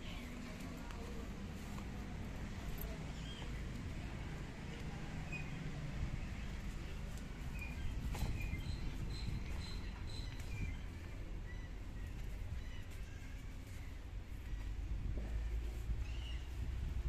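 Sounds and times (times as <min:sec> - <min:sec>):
low outdoor rumble: 0:00.0 - 0:17.0
birds chirping: 0:02.6 - 0:14.9.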